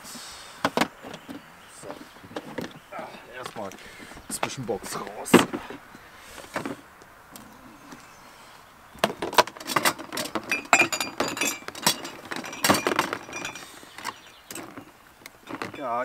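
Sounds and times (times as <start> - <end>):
box contents clinking together: 9.0 - 16.0.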